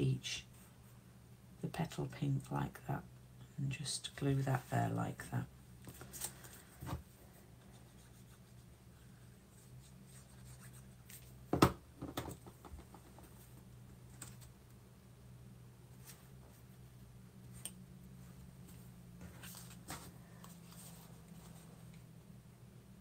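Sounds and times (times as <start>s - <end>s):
faint low hum: 0.0s - 23.0s
knock on desk: 11.5s - 12.9s.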